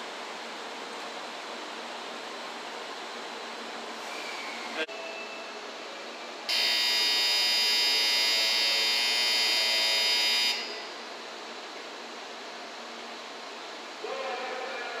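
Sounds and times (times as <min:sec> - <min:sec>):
loud steady buzzer: 0:06.5 - 0:11.0.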